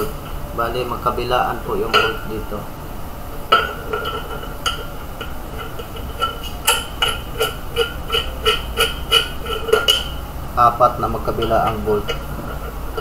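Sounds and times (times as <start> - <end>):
metal bolts clicking and clinking: 3.5 - 10.2.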